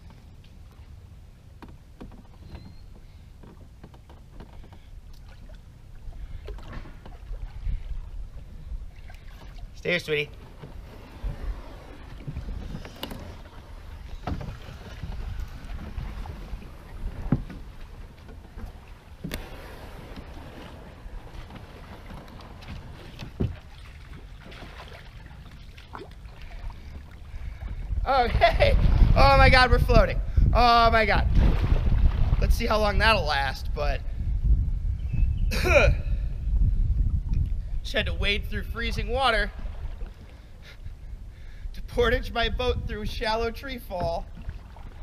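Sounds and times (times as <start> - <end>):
wind rumble on microphone: 0.0 - 45.0
paddle knocking against canoe hull: 1.6 - 5.4, 12.0 - 19.5, 20.1 - 27.8
knocks on canoe: 21.4 - 23.7.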